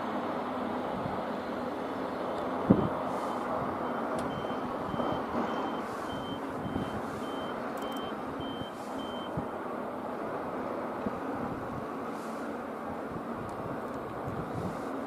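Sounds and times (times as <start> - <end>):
low outdoor rumble: 0.0 - 15.0
high-pitched warning beeps: 2.8 - 9.5.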